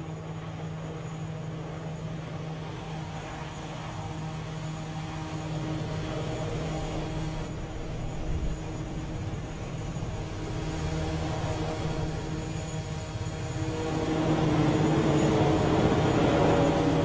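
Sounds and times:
jet aircraft engine drone: 0:00.0 - 0:17.0.

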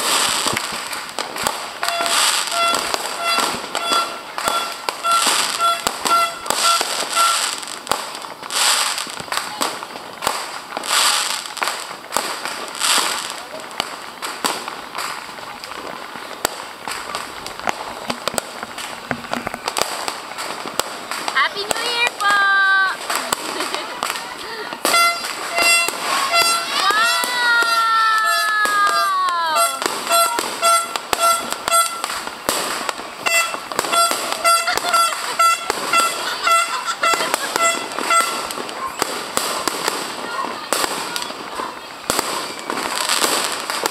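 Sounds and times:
steady hiss: 0:00.0 - 0:26.3, 0:29.4 - 0:34.4
fireworks bangs and cracks: 0:00.0 - 0:43.9
horn tooting short blasts: 0:01.9 - 0:07.5, 0:29.6 - 0:32.1, 0:33.2 - 0:38.5.

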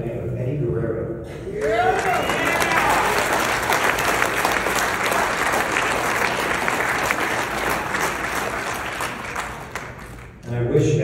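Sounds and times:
audience applauding: 0:01.5 - 0:10.5
hands clapping close: 0:02.0 - 0:10.5.

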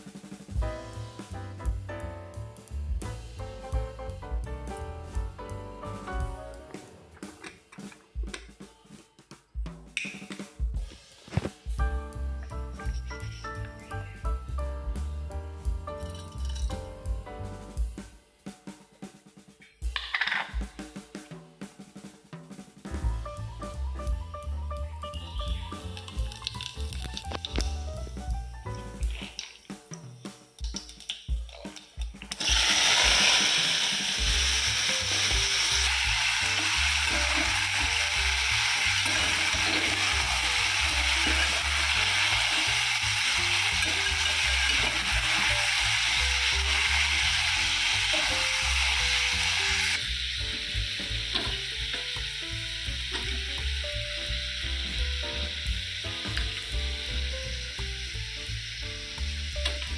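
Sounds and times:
music with steady beat: 0:00.0 - 0:59.9
vegetables sizzling in hot oil: 0:25.2 - 0:28.2, 0:32.3 - 0:59.9.

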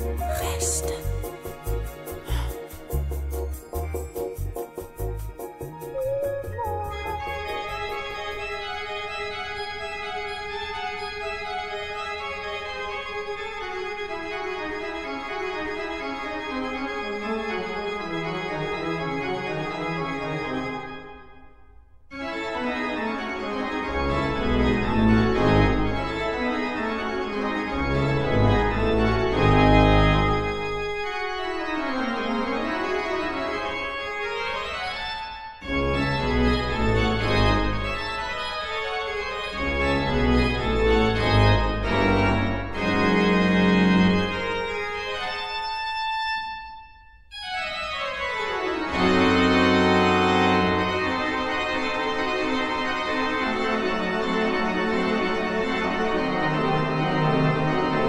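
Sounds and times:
deep organ pedal notes: 0:00.0 - 0:10.6, 0:23.2 - 0:33.8, 0:35.7 - 0:38.5, 0:39.2 - 0:45.8, 0:48.8 - 0:58.0
pipe organ playing: 0:00.0 - 0:12.7, 0:22.2 - 0:46.1, 0:47.7 - 0:58.0.

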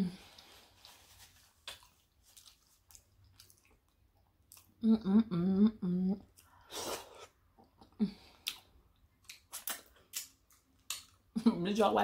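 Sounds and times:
chewing with wet smacks: 0:01.6 - 0:04.8
person humming: 0:04.8 - 0:06.2.

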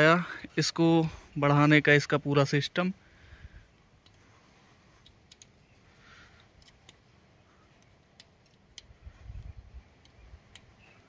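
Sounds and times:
faint light clicks: 0:05.0 - 0:11.0.

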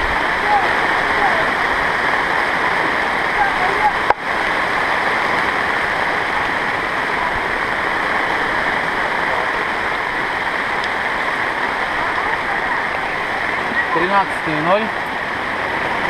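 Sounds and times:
fast-flowing river: 0:00.0 - 0:16.0
rain: 0:00.0 - 0:16.0.

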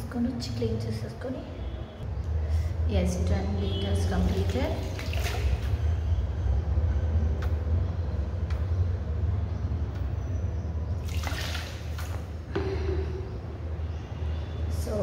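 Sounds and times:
water splashing over hands: 0:04.2 - 0:05.9, 0:11.0 - 0:12.3.

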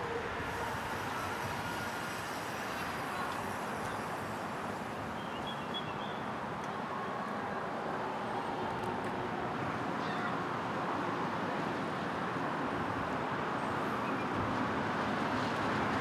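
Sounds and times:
city traffic rumble: 0:00.0 - 0:16.0.

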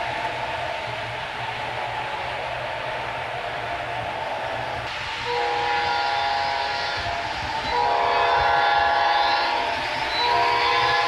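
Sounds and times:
low rumble of running train: 0:00.0 - 0:11.0
locomotive horn blasts: 0:05.2 - 0:11.0.

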